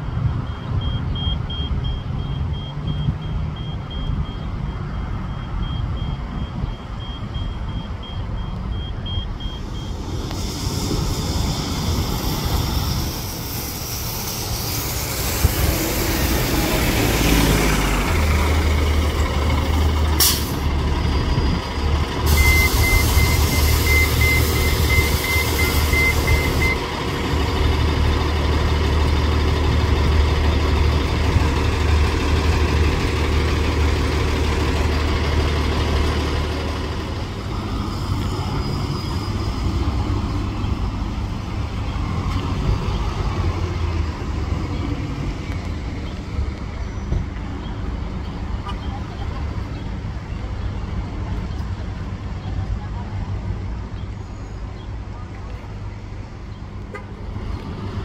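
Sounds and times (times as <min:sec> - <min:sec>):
bus diesel engine running: 0:00.0 - 0:58.0
rapid beeper: 0:05.4 - 0:10.8
air brake hiss: 0:09.5 - 0:16.3, 0:20.2 - 0:20.7, 0:22.3 - 0:26.8
hiss of air: 0:09.5 - 0:17.2, 0:20.2 - 0:20.7, 0:22.3 - 0:26.8.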